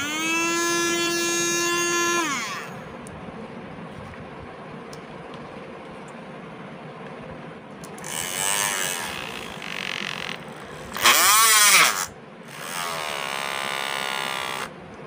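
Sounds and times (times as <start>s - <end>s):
electric hair trimmer buzzing: 0.0s - 2.8s, 8.0s - 14.7s.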